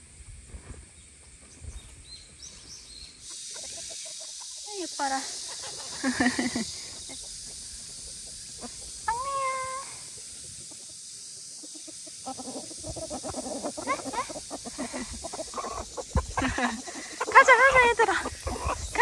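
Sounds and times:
steady high hiss: 0.0 - 19.0
chickens clucking and calling: 1.8 - 19.0.

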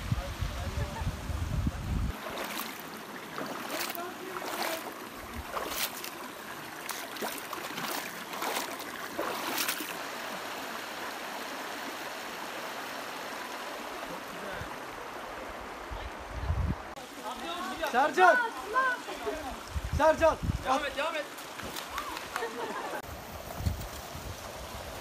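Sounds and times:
running stream water: 0.0 - 25.0
feet splashing in stream: 2.1 - 10.7, 21.3 - 23.0.

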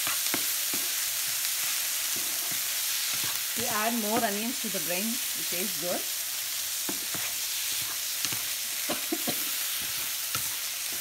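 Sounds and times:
food sizzling in oil: 0.0 - 11.0
wooden spatula scraping pan: 6.8 - 8.5.

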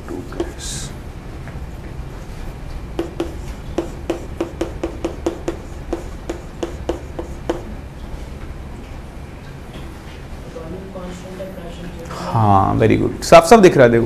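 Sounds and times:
chalk tapping on a chalkboard: 0.3 - 0.6, 3.0 - 7.7.

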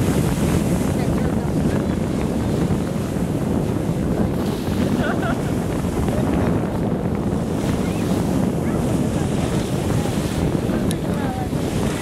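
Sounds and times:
surf washing over sandy beach: 0.0 - 12.0
wind buffeting microphone: 0.0 - 12.0.

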